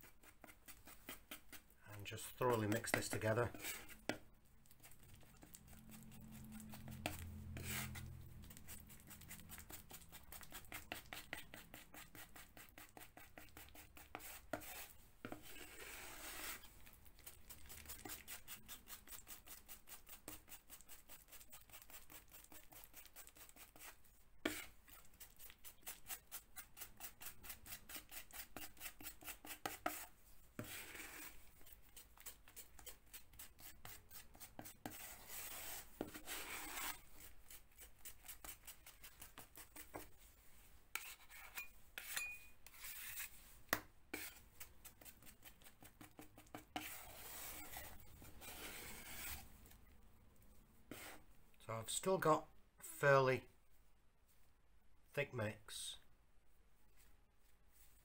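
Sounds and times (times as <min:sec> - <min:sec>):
knife scraping filler: 0:02.3 - 0:04.2, 0:04.8 - 0:40.2, 0:40.9 - 0:43.4, 0:44.1 - 0:49.8, 0:50.9 - 0:51.2.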